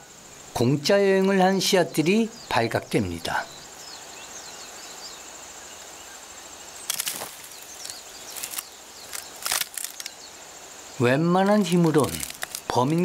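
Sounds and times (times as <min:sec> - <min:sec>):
high insect trill: 0:00.0 - 0:13.0
rustling crackles: 0:06.8 - 0:13.0.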